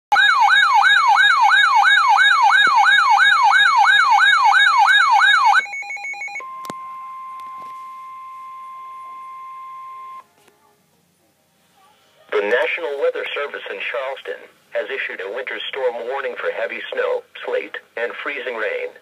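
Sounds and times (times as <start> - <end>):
steady warning alarm tone: 0.1 - 10.2
warbling siren: 0.1 - 10.2.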